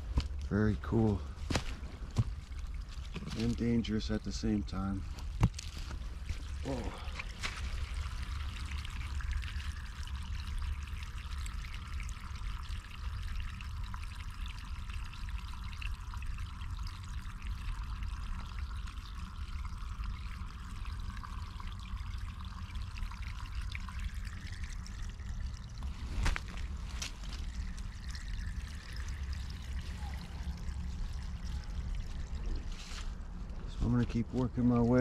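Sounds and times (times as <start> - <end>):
stream trickling over leaves: 0.0 - 35.0.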